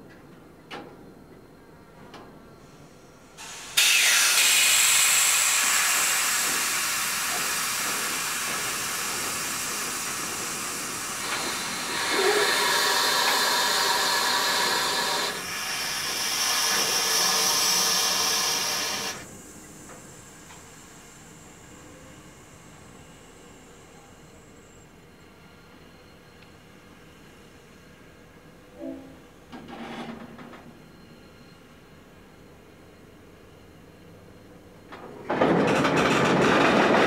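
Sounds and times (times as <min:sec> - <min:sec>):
air brakes hissing: 0:02.6 - 0:28.1.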